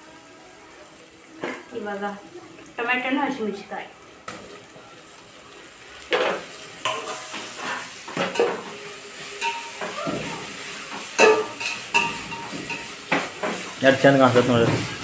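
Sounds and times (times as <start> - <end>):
hot oil sizzling: 0.0 - 15.0
utensil clattering against pan: 6.1 - 8.7, 9.4 - 13.7.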